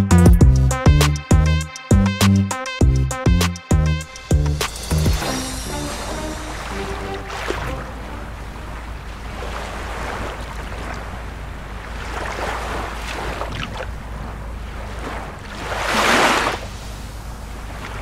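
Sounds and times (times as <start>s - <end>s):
small waves washing on shore: 5.2s - 18.0s.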